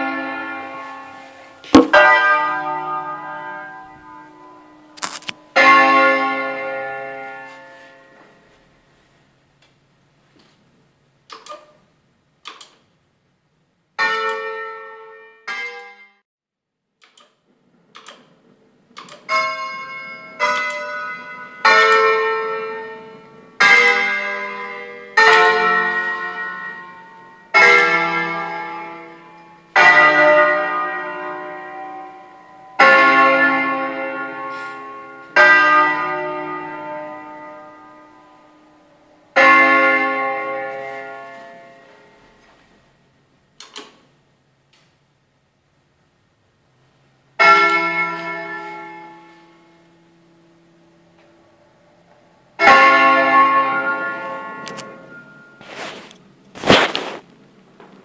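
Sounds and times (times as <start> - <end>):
church bells ringing: 0.0 - 8.8, 14.0 - 16.2, 19.2 - 42.5, 47.4 - 56.1.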